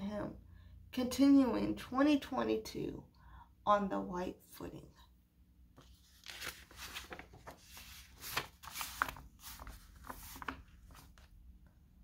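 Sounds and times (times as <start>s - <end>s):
paper rustling: 5.8s - 11.4s.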